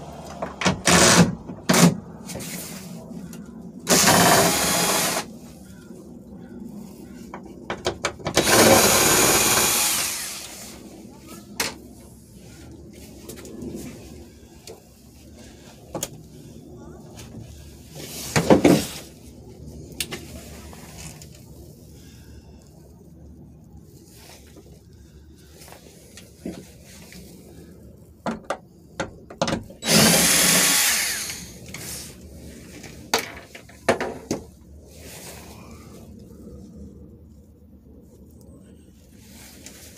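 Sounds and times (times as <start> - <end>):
cordless power driver running: 3.9 - 5.3, 8.4 - 10.6, 29.8 - 31.6.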